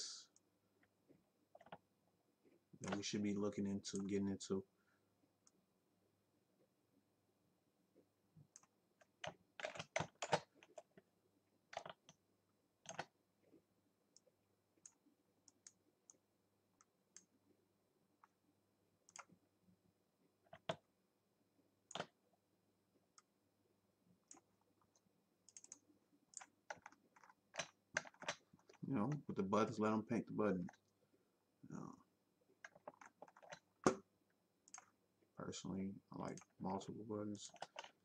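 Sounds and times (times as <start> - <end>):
keyboard and mouse clicks: 1.5 - 1.8, 2.8 - 3.1, 8.4 - 11.0, 11.7 - 12.2, 12.8 - 13.2, 14.1 - 16.2, 19.0 - 19.4, 20.4 - 20.8, 21.9 - 22.2, 24.2 - 29.8, 32.6 - 35.0, 37.4 - 38.0.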